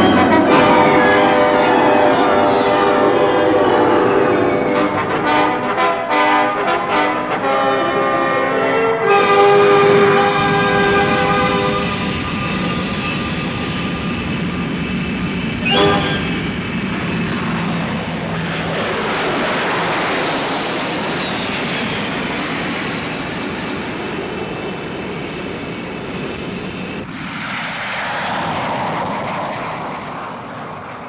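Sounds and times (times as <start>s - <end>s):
aircraft flying past: 15.8s - 24.3s, 27.0s - 31.0s.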